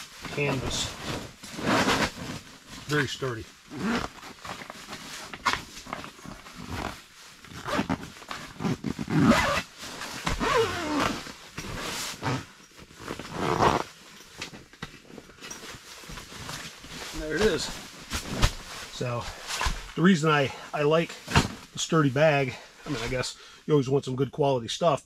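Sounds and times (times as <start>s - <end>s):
canvas rustling and scraping: 0.0s - 23.4s
zipper pulls rasping: 0.3s - 3.0s, 3.7s - 14.5s, 16.1s - 19.0s.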